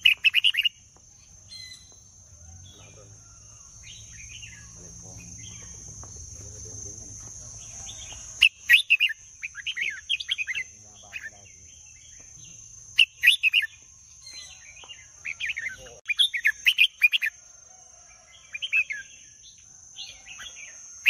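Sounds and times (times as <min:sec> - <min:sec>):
bird singing whistled phrases: 0:00.0 - 0:00.8
steady high-pitched whine: 0:00.0 - 0:16.0.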